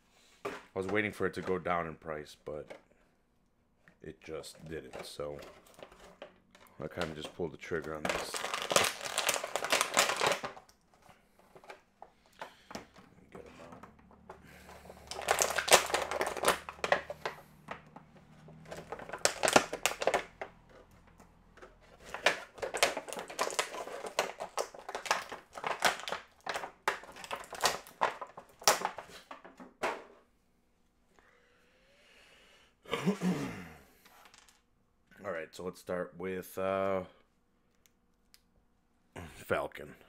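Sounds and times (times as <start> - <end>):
packaging crinkling and rustling: 4.8 - 13.7, 14.5 - 29.5
sharp clicks and snaps: 37.7 - 38.5.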